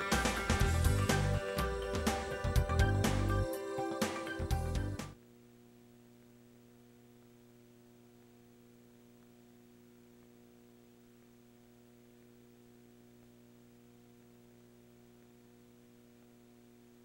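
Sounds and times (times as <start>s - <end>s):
music with a steady beat: 0.0s - 5.2s
faint electrical hum: 0.0s - 17.0s.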